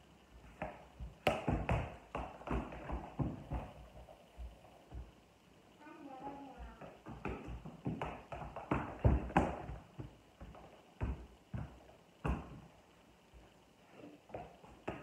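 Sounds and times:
ball thumping on wooden floor: 0:00.5 - 0:05.1, 0:06.6 - 0:12.7, 0:14.3 - 0:15.0.

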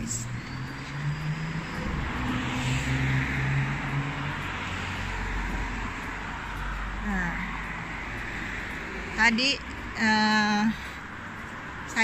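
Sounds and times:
vehicle engine driving past: 0:00.0 - 0:09.2
road noise: 0:00.0 - 0:12.0.

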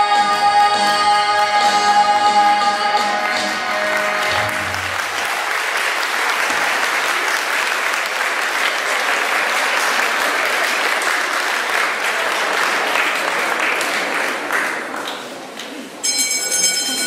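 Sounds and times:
audience applause: 0:03.0 - 0:16.0.

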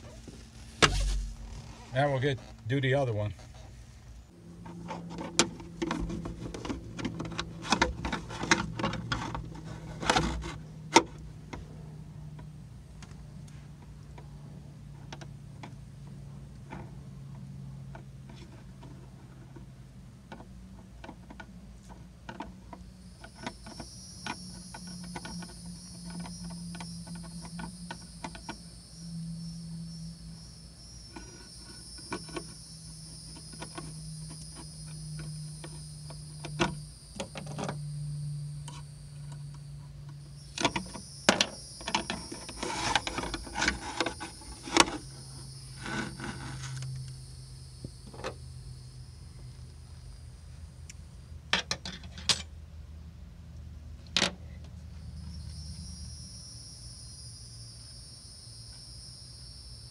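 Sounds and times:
wire rubbing against boat hull: 0:00.0 - 0:11.8, 0:40.6 - 0:47.1
low steady hum: 0:00.0 - 0:59.9.

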